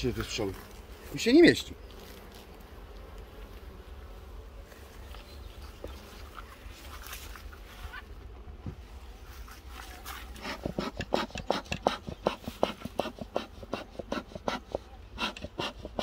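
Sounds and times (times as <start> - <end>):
bellows puffing: 10.2 - 16.0.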